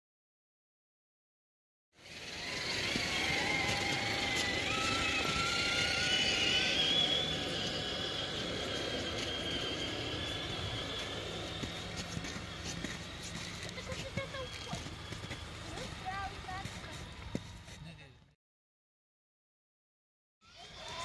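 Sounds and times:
rc truck motors whining: 2.0 - 17.8, 20.4 - 21.0.

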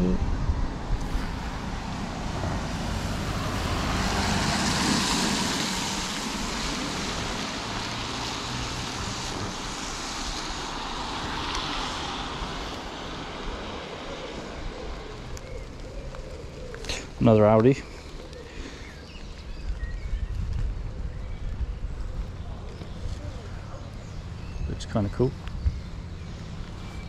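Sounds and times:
tyres hissing on wet road: 1.0 - 19.4.

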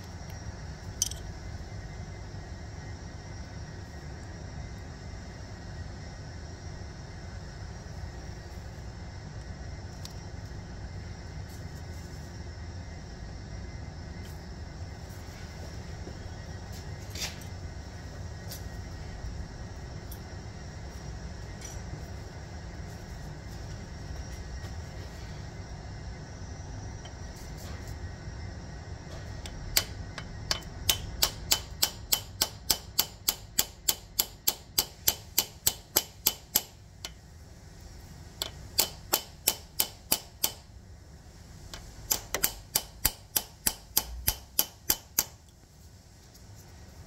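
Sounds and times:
hammer tapping metal: 29.7 - 37.2, 38.4 - 40.6, 42.1 - 45.5.

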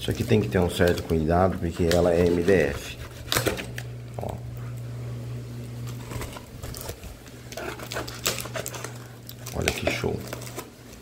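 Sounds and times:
low steady hum: 0.0 - 11.0
tape crackling: 0.0 - 11.0.

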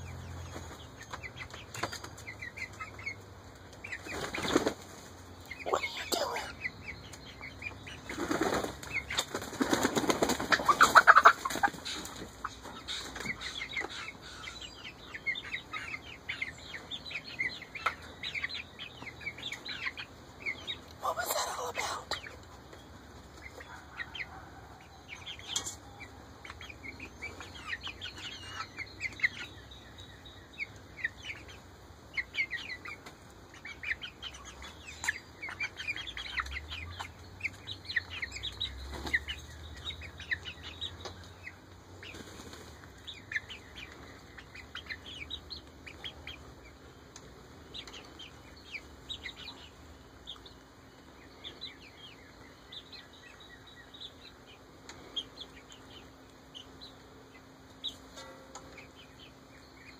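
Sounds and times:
chicks peeping and chirping: 0.0 - 59.9
wings fluttering: 8.1 - 12.2.

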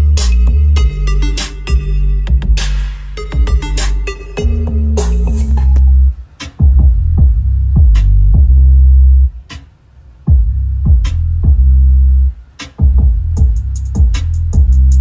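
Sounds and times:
deep bass notes: 0.0 - 9.4, 10.3 - 15.0
drum-machine beat: 0.0 - 15.0
fast hi-hat ticks: 12.5 - 15.0.

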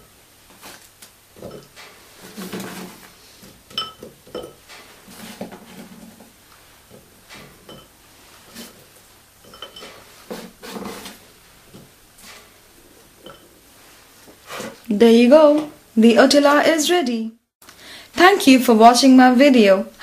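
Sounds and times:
clusters clinking against ceramic bowl: 3.7 - 4.6, 7.6 - 7.9, 9.4 - 10.0.

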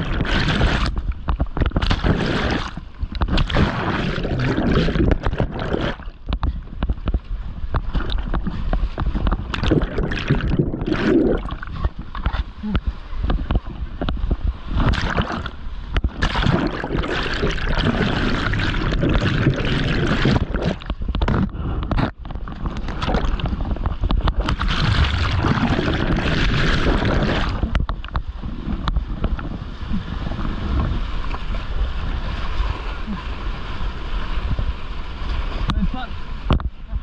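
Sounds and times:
whitewater rushing and splashing: 0.0 - 6.8, 7.8 - 13.8, 14.7 - 27.8.

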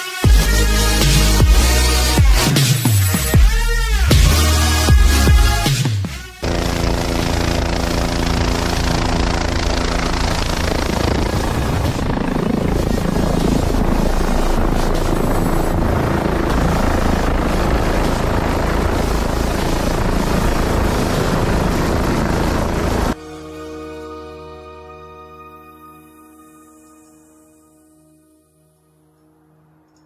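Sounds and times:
helicopter rotor and engine: 6.4 - 23.2.

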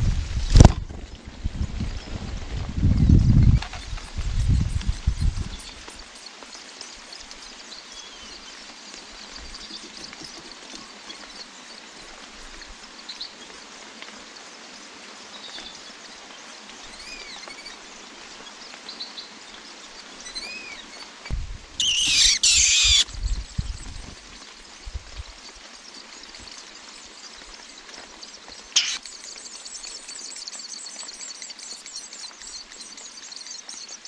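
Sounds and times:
steady rain falling: 0.0 - 34.0
shrill bird calling: 21.8 - 23.1, 28.7 - 32.2
thin bird chirps: 21.8 - 24.1, 26.1 - 34.0.

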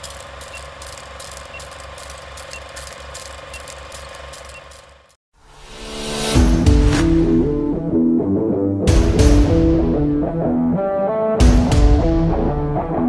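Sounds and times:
film projector clattering: 0.0 - 5.2.

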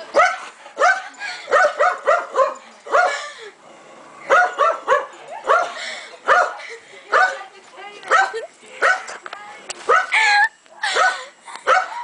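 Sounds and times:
small dog barking: 0.2 - 3.2, 4.3 - 6.6, 8.1 - 9.1, 9.9 - 10.2, 11.0 - 12.0.

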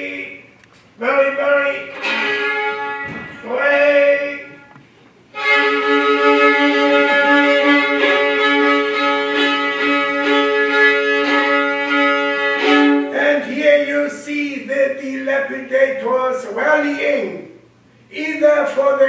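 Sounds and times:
violin playing long notes: 1.2 - 13.4.

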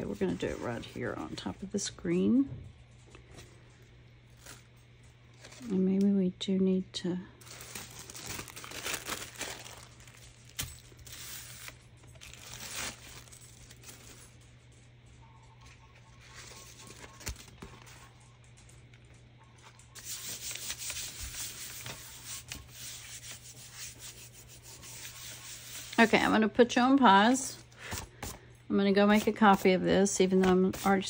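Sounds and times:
hands rubbing on paper: 20.0 - 26.3.

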